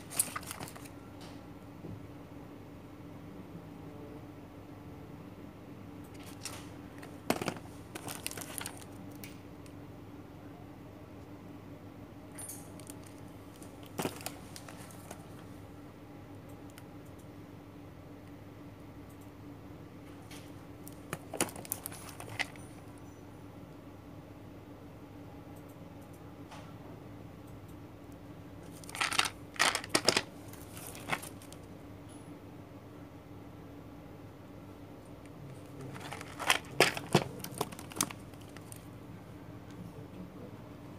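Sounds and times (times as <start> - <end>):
plastic wrapping crinkling: 0.0 - 0.9, 6.2 - 9.0, 12.9 - 15.2, 20.9 - 22.6, 28.7 - 31.6, 35.8 - 38.8
parcels rustling and clicking: 0.0 - 1.4, 6.1 - 9.4, 12.6 - 15.5, 20.3 - 23.0, 28.6 - 31.7, 35.2 - 38.9
faint steady hum: 0.0 - 40.9.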